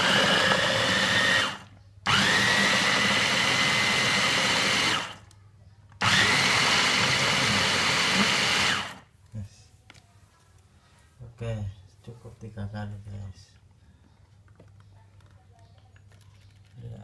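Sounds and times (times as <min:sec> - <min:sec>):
blender motor whining: 0:00.0 - 0:05.2, 0:06.0 - 0:09.0.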